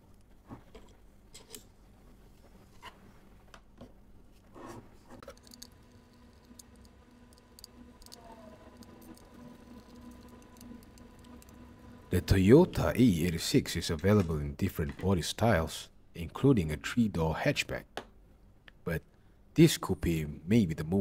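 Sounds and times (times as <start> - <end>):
faint steady hum: 0.0 - 21.0
screwdriver scraping on plastic: 4.6 - 11.6.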